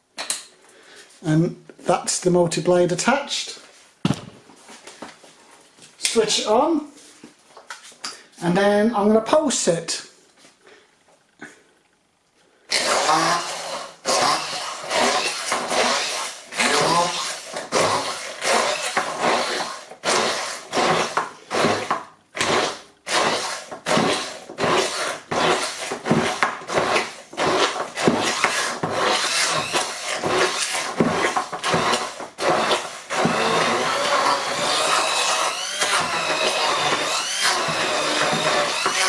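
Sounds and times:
hand blender motor whine: 0:12.7 - 0:39.0.

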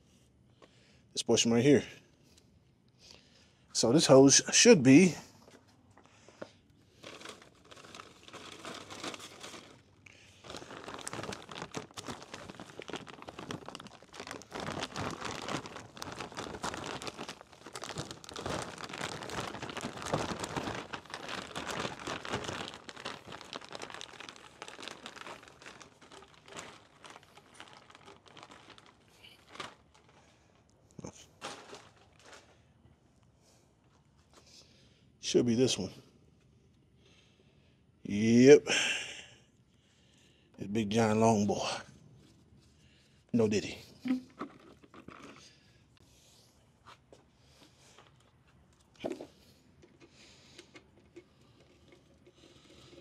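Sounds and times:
packaging crinkling: 0:06.9 - 0:30.6, 0:31.4 - 0:32.5.

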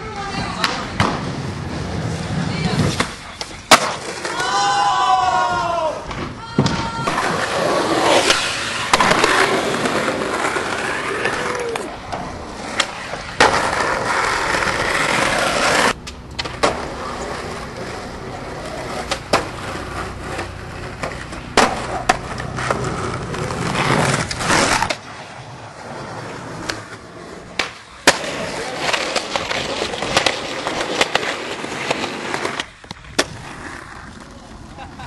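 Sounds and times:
skateboard wheels rolling on concrete: 0:00.0 - 0:35.0
skateboard tail clacks: 0:06.0 - 0:25.1, 0:26.6 - 0:34.8.

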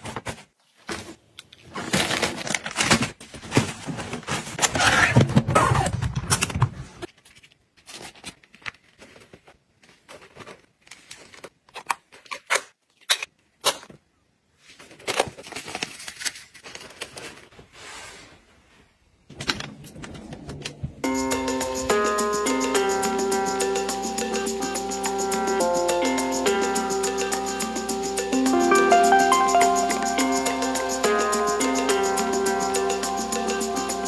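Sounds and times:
music: 0:21.0 - 0:34.0.

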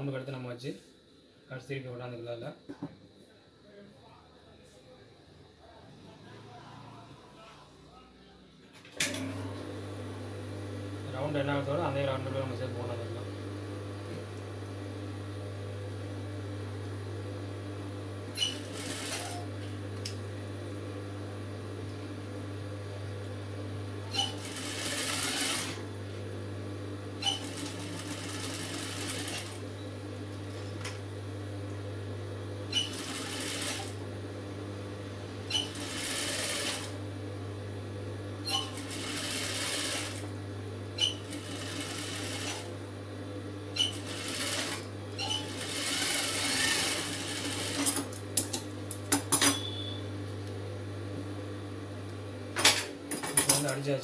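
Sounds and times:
sewing machine stitching: 0:18.3 - 0:19.5, 0:24.1 - 0:25.9, 0:27.2 - 0:29.7, 0:32.7 - 0:34.0, 0:35.5 - 0:37.0, 0:38.5 - 0:40.4, 0:41.0 - 0:42.7, 0:43.8 - 0:48.5.

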